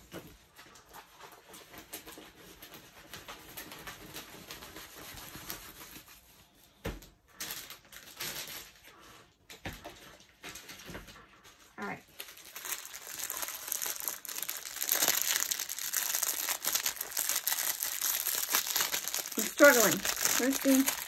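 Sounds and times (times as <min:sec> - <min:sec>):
plastic packaging rustling: 0:07.3 - 0:09.3, 0:10.0 - 0:21.0.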